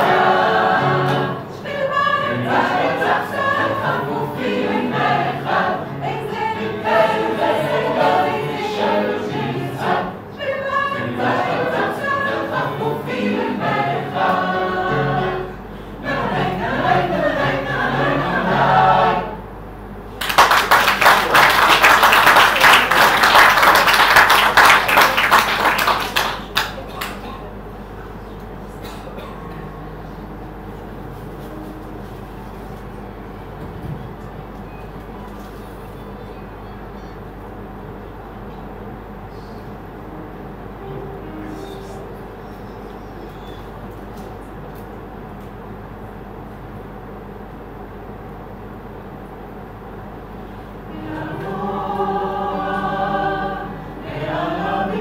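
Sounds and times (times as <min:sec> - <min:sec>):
mixed choir singing: 0:00.0 - 0:19.6, 0:20.6 - 0:26.3, 0:50.8 - 0:55.0
audience applauding: 0:20.2 - 0:27.2.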